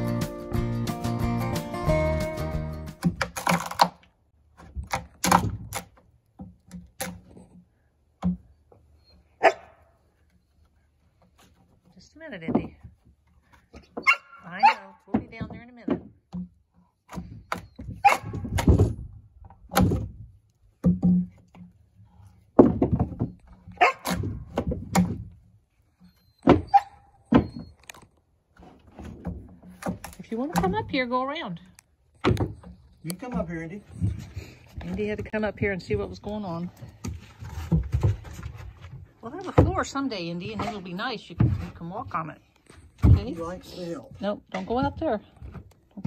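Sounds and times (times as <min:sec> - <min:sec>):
chisel chopping wood: 0:03.0 - 0:07.4.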